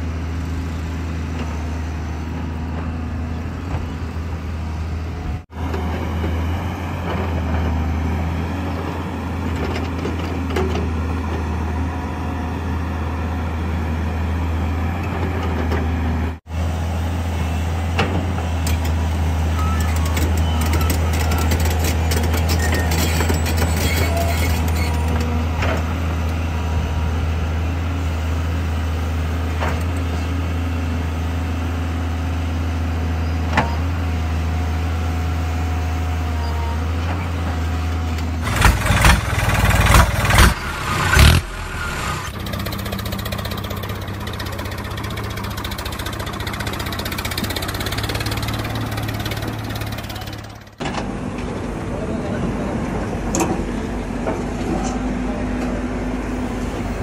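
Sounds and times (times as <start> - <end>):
machine engine hum: 37.1 - 57.0.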